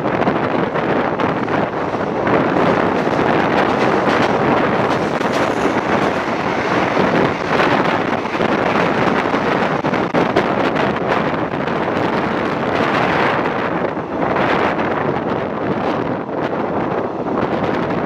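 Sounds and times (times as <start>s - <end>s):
moving train running noise: 0.0s - 18.0s
train passing close: 0.0s - 18.0s
wind rushing on microphone: 0.0s - 18.0s
wheels clicking on rails: 0.2s - 13.8s.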